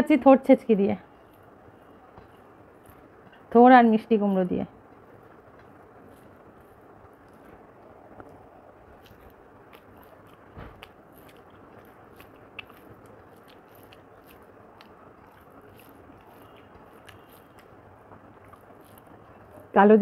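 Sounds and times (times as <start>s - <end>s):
chewing with smacks: 1.2s - 3.5s, 4.9s - 19.8s
fingers mixing rice on plate: 5.6s - 19.7s.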